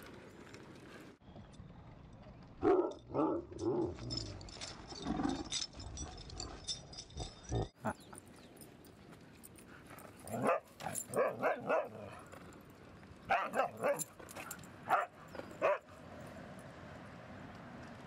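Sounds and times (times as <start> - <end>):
dogs barking and yipping: 10.0 - 12.4, 13.3 - 16.0.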